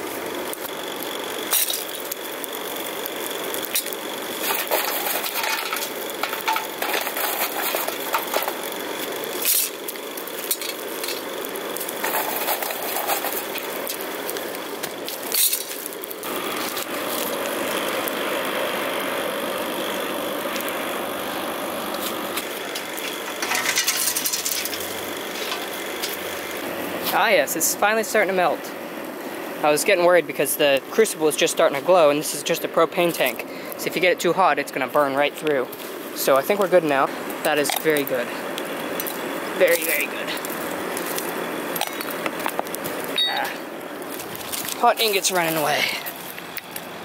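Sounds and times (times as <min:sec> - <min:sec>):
forge fire roaring with blower: 0:00.0 - 0:47.0
metal clinks and knocks: 0:22.8 - 0:26.2.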